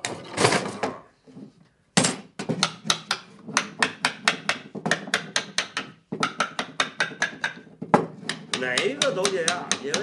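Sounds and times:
small hammer tapping wood: 2.4s - 10.0s.

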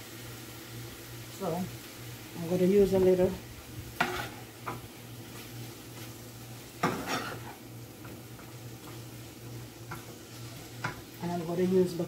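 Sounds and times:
food sizzling faintly: 0.0s - 12.0s
metal spoon scraping frying pan: 4.0s - 4.8s, 6.8s - 7.6s.

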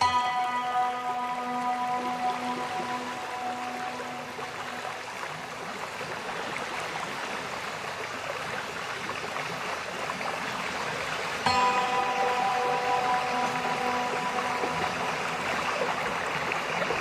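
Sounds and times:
sustained music notes: 0.0s - 5.2s, 11.5s - 17.0s.

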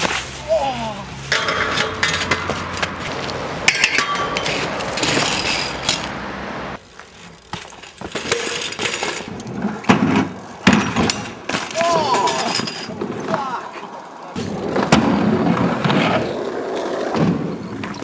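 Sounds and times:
steady rolling noise: 0.2s - 18.0s
bike clattering on ground: 1.3s - 6.2s, 6.8s - 16.2s.

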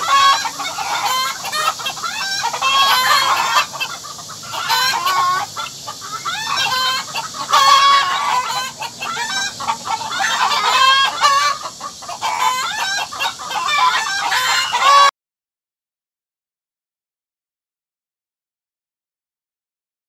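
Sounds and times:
chickens clucking: 0.0s - 15.1s.

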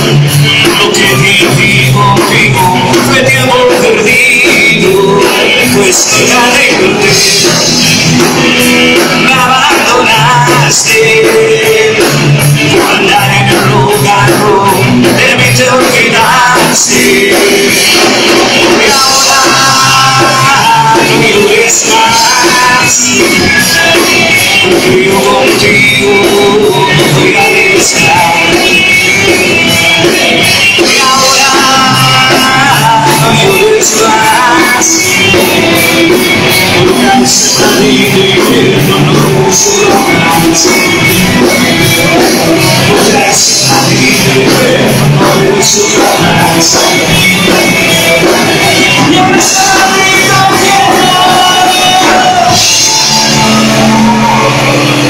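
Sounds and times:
electric guitars: 0.0s - 55.0s
live rock band playing: 0.0s - 55.0s.

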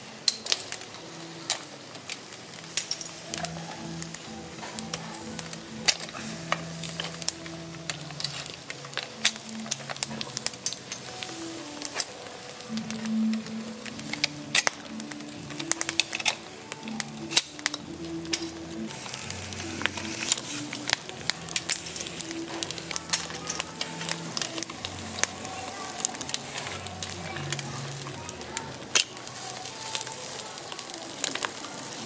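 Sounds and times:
quiet music: 0.0s - 32.0s
snails sizzling on a grill: 0.0s - 32.0s
sharp pops and clicks: 11.8s - 19.1s.

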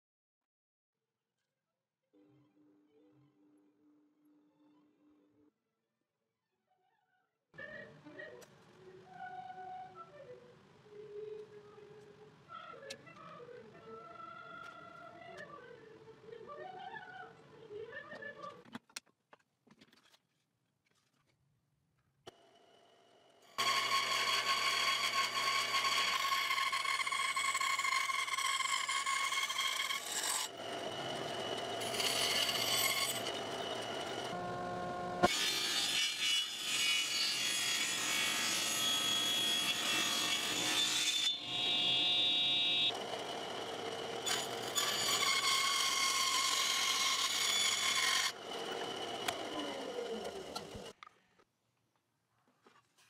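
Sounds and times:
band saw cutting wood: 23.5s - 50.9s.

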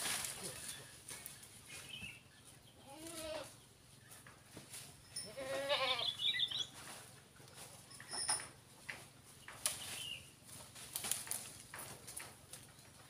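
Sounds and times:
goat bleating: 2.8s - 3.6s, 5.2s - 6.2s.

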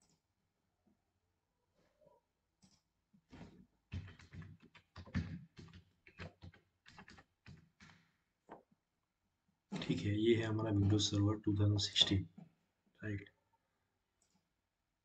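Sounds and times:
typing on keyboard: 3.9s - 8.1s.

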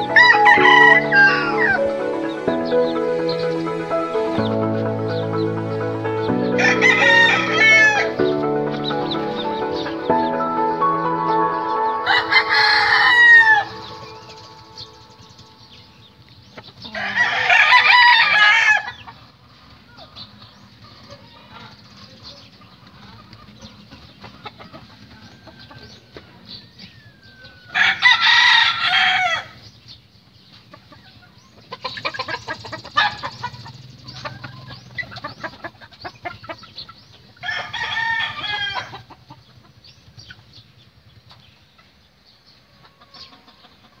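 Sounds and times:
rooster crowing: 0.0s - 2.1s, 6.5s - 8.2s, 11.5s - 15.0s, 16.9s - 19.0s, 25.1s - 29.6s, 37.4s - 39.1s
chickens clucking: 0.0s - 44.0s.

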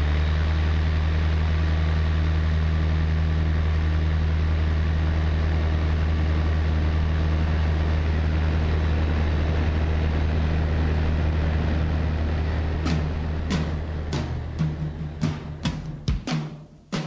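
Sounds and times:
light aircraft engine droning: 0.0s - 17.0s
background music drum hits: 12.8s - 17.0s.

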